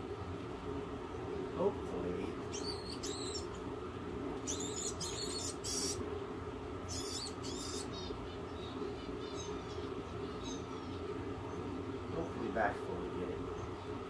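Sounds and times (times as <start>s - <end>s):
low room hum: 0.0s - 14.0s
rat squeaking: 2.5s - 3.6s, 4.4s - 6.0s, 6.9s - 11.1s.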